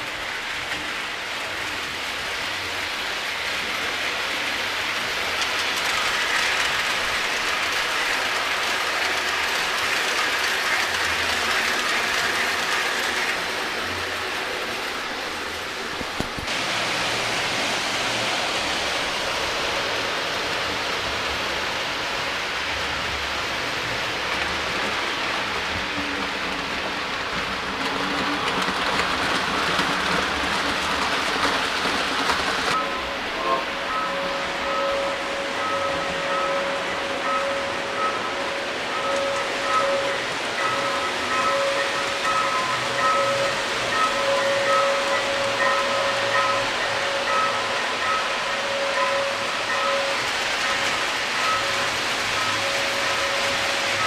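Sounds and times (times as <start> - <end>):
model train wheels rumbling: 0.0 - 54.0.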